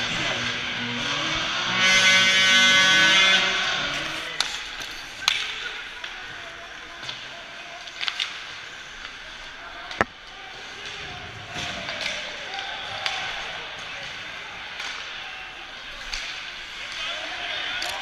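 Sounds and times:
arena crowd noise: 0.0s - 18.0s
loud buzzing horn tone: 0.7s - 4.5s.

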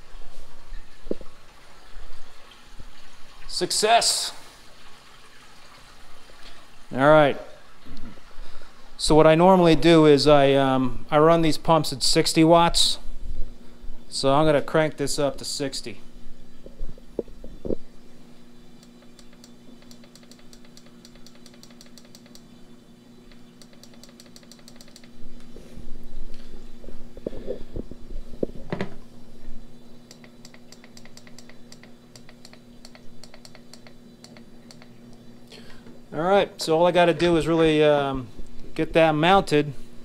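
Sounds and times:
aquarium pumps humming: 0.0s - 40.0s
rapid light clicking: 18.8s - 22.5s, 23.3s - 25.2s, 30.1s - 35.2s.

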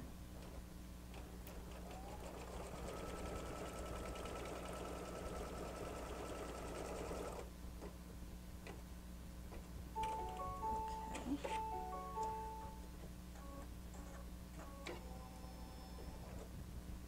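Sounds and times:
embroidery machine stitching: 1.5s - 7.5s.

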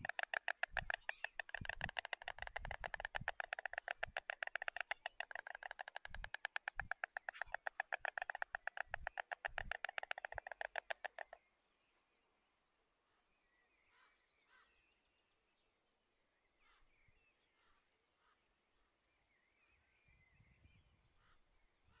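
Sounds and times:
storks bill-clattering: 0.0s - 11.4s.

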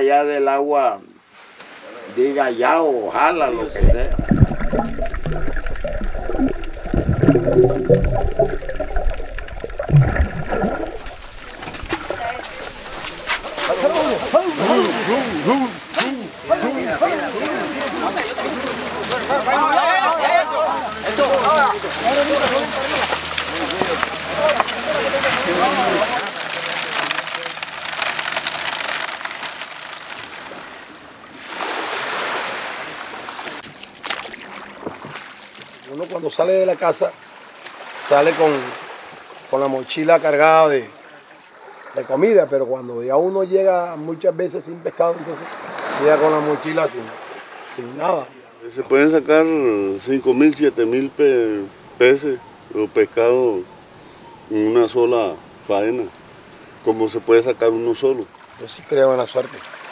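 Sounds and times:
wave breaking: 3.1s - 35.6s
surf washing over gravel: 3.2s - 37.1s
underwater gurgling and bubbling: 3.4s - 13.0s.

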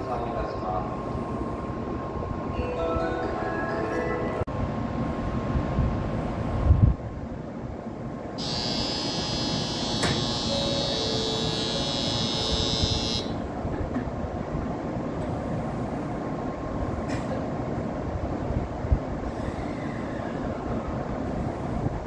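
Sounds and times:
train humming: 7.8s - 18.5s
platform departure bell ringing: 8.4s - 13.6s.

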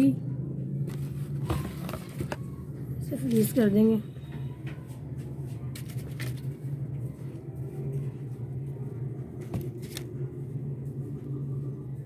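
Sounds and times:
steady low hum: 0.0s - 12.0s
paper rustling: 0.9s - 2.4s, 5.5s - 6.6s, 9.6s - 10.1s.

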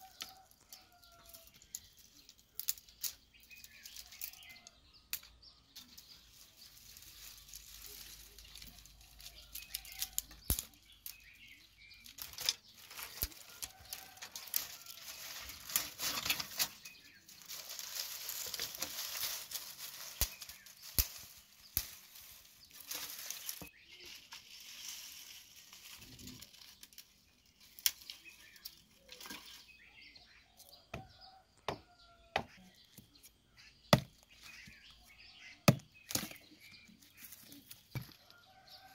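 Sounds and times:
dry leaves rustling: 0.0s - 31.4s, 33.6s - 38.9s
twigs snapping and crackling: 0.0s - 31.4s, 33.9s - 38.9s
hatchet chopping: 31.7s - 32.6s, 34.0s - 34.2s, 35.7s - 36.3s.

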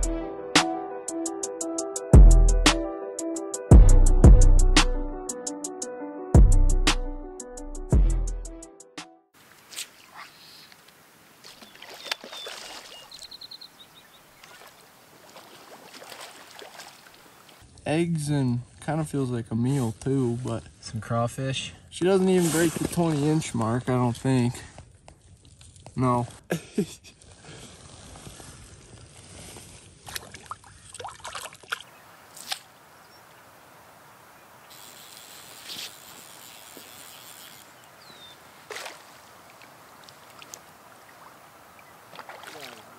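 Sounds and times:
open-air background: 0.0s - 42.9s
water splashing at shoreline: 11.3s - 17.6s, 30.0s - 33.5s, 37.7s - 42.9s.

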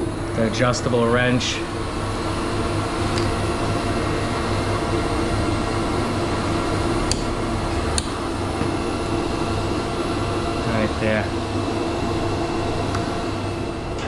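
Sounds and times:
machine drone: 0.0s - 14.0s.

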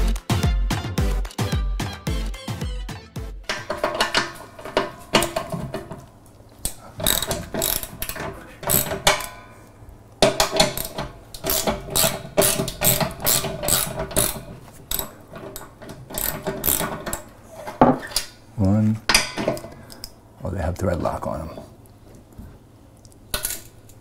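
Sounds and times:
ratchet wrench clicking: 7.0s - 9.4s, 10.3s - 17.3s.

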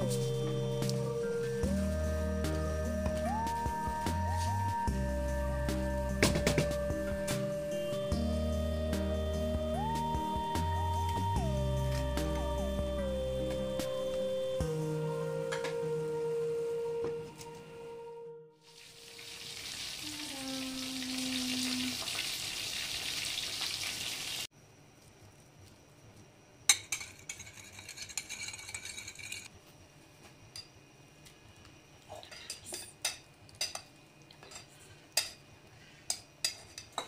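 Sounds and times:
rice pot hissing and sizzling: 18.6s - 24.5s.

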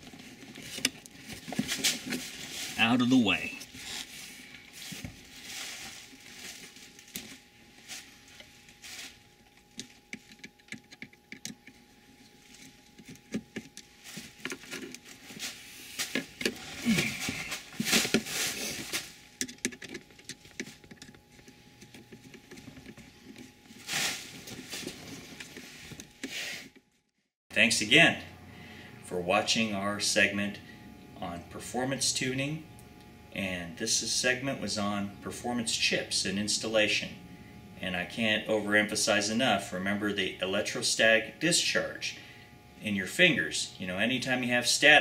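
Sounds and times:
plastic and metal parts clicking: 9.7s - 11.8s, 19.4s - 23.4s.

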